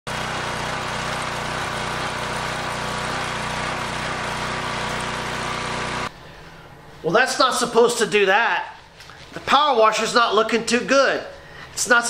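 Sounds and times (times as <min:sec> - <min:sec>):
small gas engine running: 0:00.1 - 0:06.1
water spraying from leaking pump: 0:00.1 - 0:06.1.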